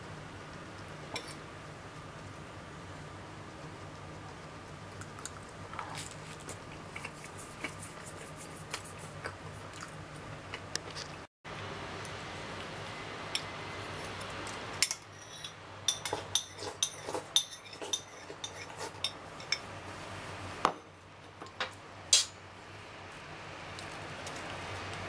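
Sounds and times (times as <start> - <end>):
metal spoon clinking on ceramic bowl: 14.8 - 19.6.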